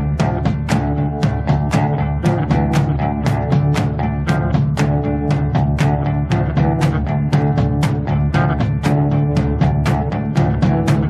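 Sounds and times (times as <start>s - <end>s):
guitar and bass over a beat: 0.0s - 11.0s.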